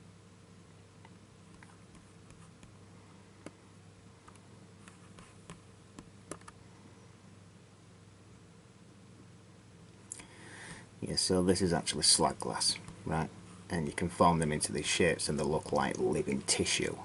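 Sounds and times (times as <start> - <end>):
faint low hum: 0.0 - 17.0
computer mouse clicks: 4.2 - 6.6.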